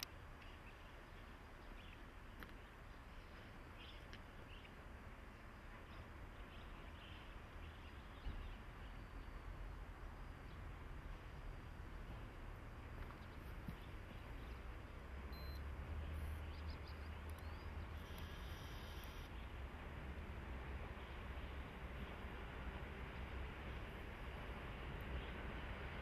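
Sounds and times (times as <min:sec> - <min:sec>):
small birds chirping: 0:00.0 - 0:10.8, 0:12.1 - 0:19.6, 0:24.7 - 0:26.0
low steady rumble: 0:00.0 - 0:26.0
soft hiss: 0:00.0 - 0:26.0.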